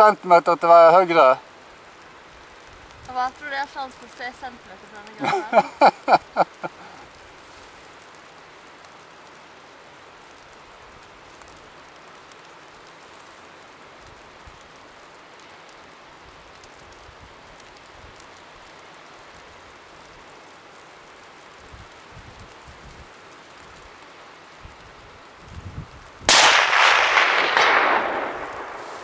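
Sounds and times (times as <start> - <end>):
snowstorm wind hiss: 0.0 - 29.0
person speaking: 3.1 - 5.8.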